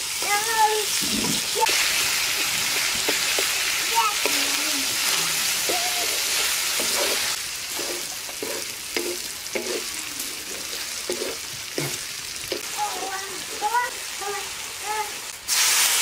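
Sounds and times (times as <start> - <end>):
onions sizzling in hot oil: 0.0 - 16.0
wooden spatula scraping a wok: 4.2 - 13.8.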